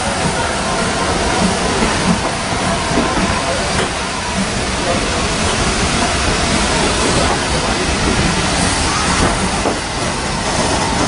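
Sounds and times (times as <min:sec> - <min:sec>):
steam hissing from locomotive: 0:00.0 - 0:11.0.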